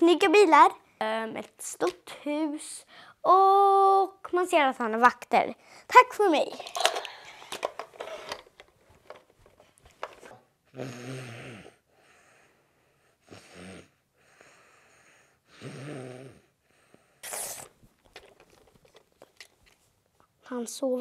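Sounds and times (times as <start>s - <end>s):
child fake snoring: 10.7s - 12.0s, 13.2s - 14.6s, 15.4s - 16.6s
soft breaths out: 11.6s - 15.7s
short sharp hiss: 17.2s - 17.8s.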